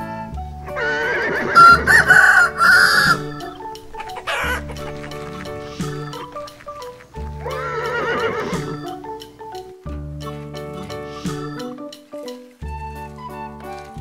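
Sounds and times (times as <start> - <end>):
light background music: 0.0 - 14.0
rooster crowing: 0.7 - 9.0.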